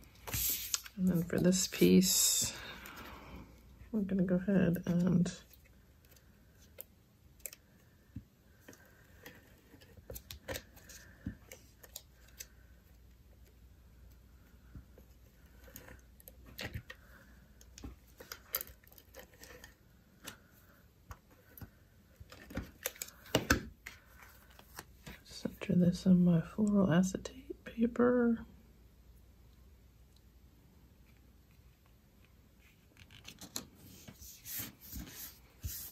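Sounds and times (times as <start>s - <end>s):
paper rustling: 0.2s - 1.8s, 33.0s - 35.9s.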